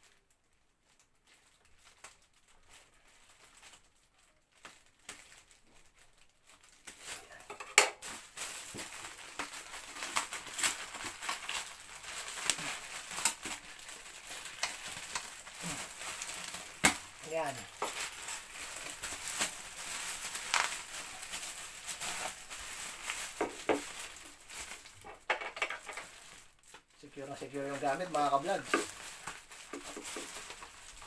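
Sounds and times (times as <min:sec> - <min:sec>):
plastic wrapping crinkling: 0:00.0 - 0:31.0.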